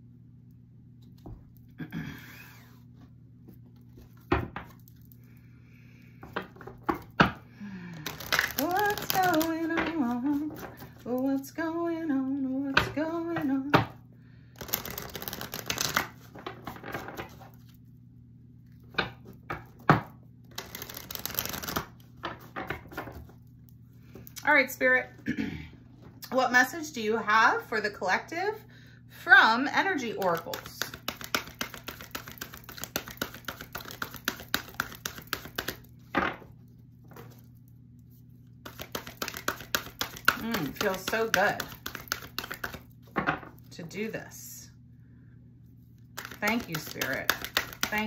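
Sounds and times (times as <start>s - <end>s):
cards being shuffled: 8.0s - 11.4s, 14.6s - 17.8s, 20.5s - 23.4s, 30.0s - 36.0s, 38.6s - 43.2s, 46.0s - 48.0s.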